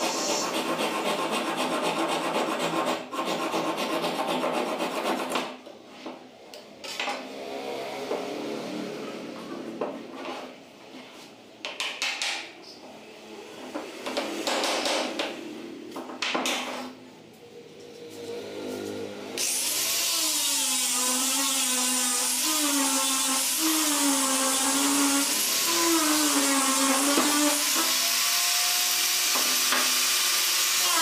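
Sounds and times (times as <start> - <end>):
angle grinder whining: 18.2 - 31.0.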